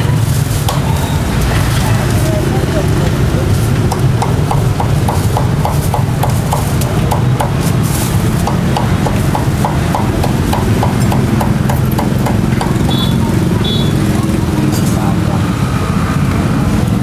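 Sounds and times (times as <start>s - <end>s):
cleaver chopping on wooden block: 3.9s - 7.8s, 8.4s - 13.0s.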